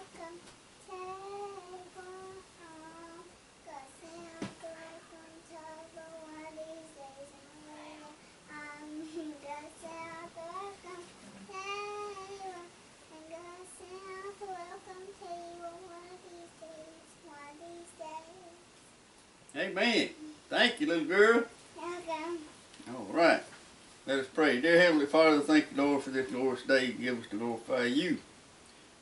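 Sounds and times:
girl singing alone: 0:00.0 - 0:18.8, 0:21.8 - 0:22.6.

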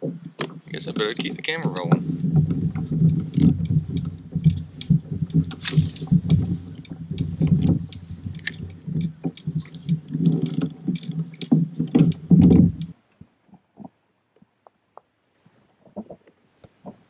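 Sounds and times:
low rumble of kayak on water: 0:00.0 - 0:17.0
fishing reel ticks: 0:03.2 - 0:12.9.

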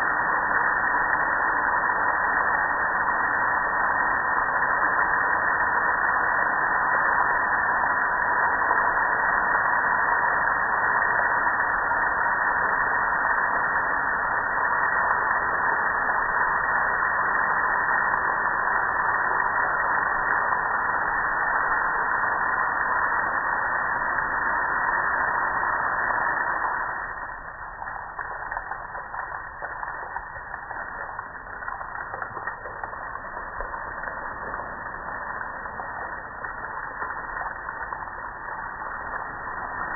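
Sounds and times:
water spraying onto a grill: 0:24.2 - 0:39.9.

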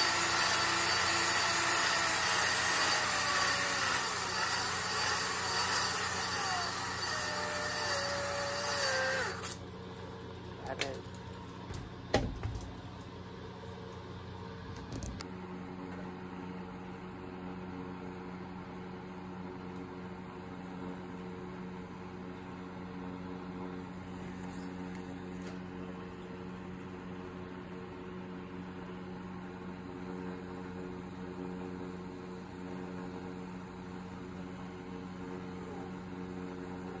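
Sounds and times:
space heater fan humming: 0:00.0 - 0:15.3.

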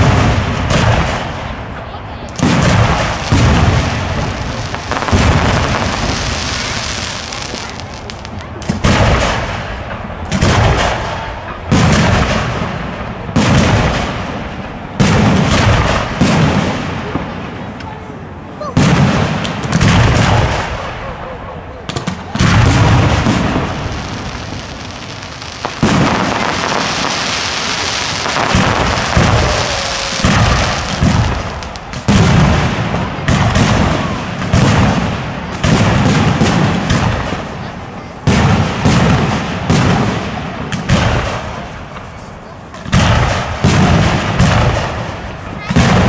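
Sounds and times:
firework hissing: 0:02.3 - 0:11.3, 0:21.8 - 0:34.7
firework shells bursting: 0:02.4 - 0:11.0, 0:21.9 - 0:37.5.

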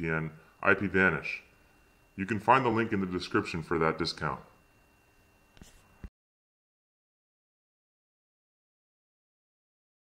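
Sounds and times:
faint recording hiss: 0:00.0 - 0:06.1.

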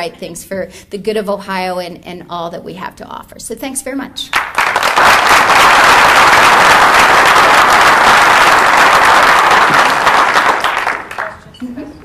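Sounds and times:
audience applauding: 0:04.3 - 0:11.4.

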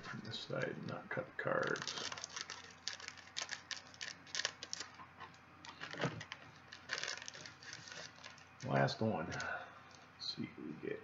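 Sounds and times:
plastic wrapper crinkling: 0:01.5 - 0:10.0.

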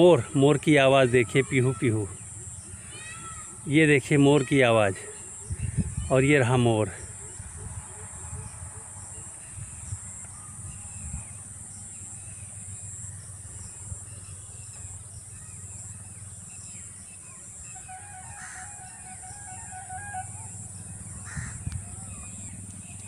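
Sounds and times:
wind rumble on microphone: 0:05.4 - 0:06.4, 0:07.0 - 0:12.0, 0:20.4 - 0:23.0
bird drawn-out call: 0:17.2 - 0:23.0
high-pitched insect drone: 0:17.4 - 0:22.6.

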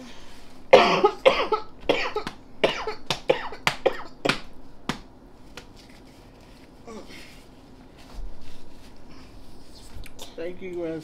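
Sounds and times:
woman coughing: 0:00.7 - 0:04.3.

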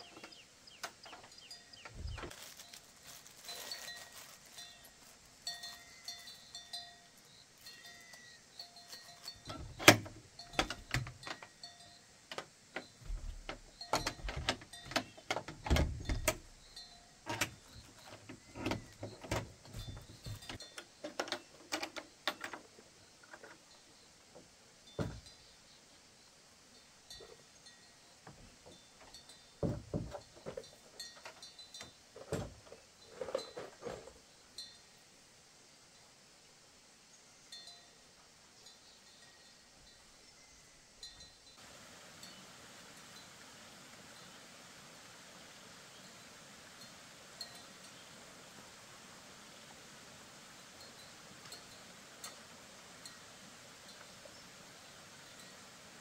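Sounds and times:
faint high chirping calls: 0:00.0 - 0:09.8, 0:16.1 - 0:29.6, 0:37.1 - 0:41.6.

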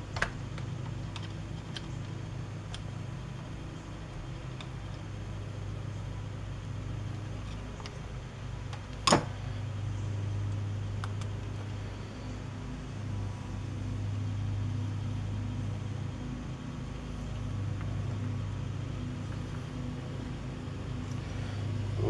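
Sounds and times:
low mechanical hum: 0:00.0 - 0:22.0.

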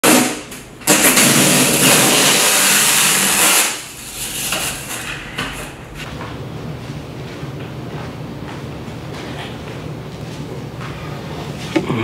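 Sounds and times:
packing tape tearing screech: 0:00.0 - 0:05.1.

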